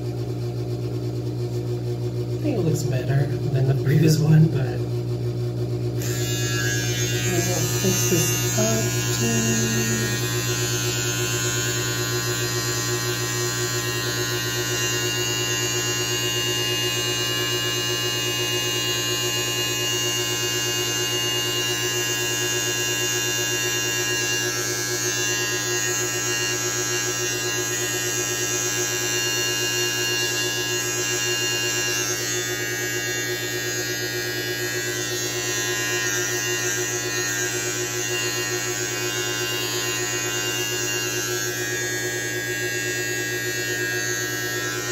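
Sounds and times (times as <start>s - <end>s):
electric beard trimmer buzzing: 2.5s - 4.8s, 5.8s - 44.9s.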